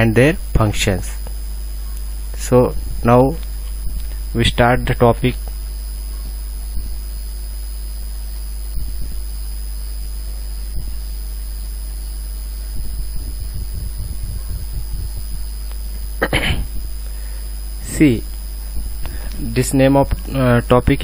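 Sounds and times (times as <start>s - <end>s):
faint high whine: 0.0s - 21.0s
low electrical hum: 0.0s - 21.0s.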